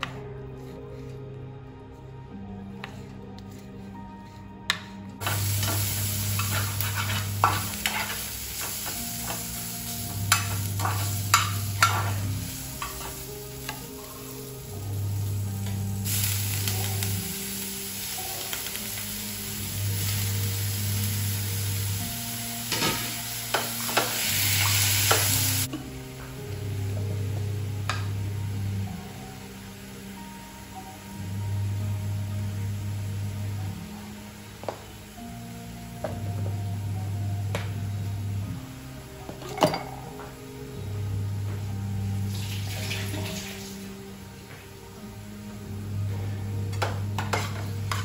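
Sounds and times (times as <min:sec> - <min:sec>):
soft background music: 0:00.0 - 0:48.0
spatula scraping pan: 0:02.8 - 0:09.4, 0:47.2 - 0:48.0
food sizzling in frying pan: 0:05.2 - 0:36.1, 0:42.1 - 0:44.5.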